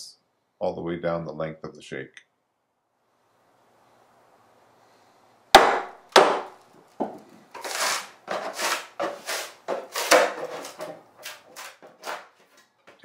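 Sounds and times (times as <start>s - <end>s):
wood crackling and tearing: 7.5s - 13.0s.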